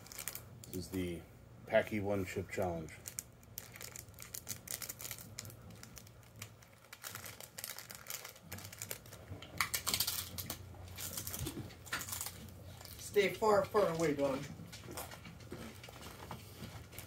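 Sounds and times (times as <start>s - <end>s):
foil packet crinkling and tearing: 0.0s - 1.1s, 2.8s - 14.4s.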